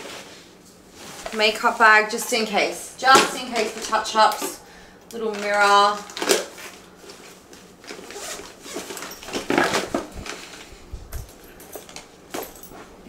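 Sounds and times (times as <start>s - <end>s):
rustling and knocks of items: 3.0s - 4.6s, 5.2s - 13.0s
bag zipper being pulled: 7.9s - 9.9s.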